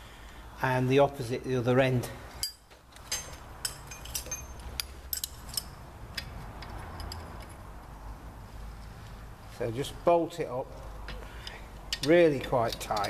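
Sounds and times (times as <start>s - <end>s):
bolt and washer clinking on metal: 2.4s - 7.6s, 11.1s - 13.0s.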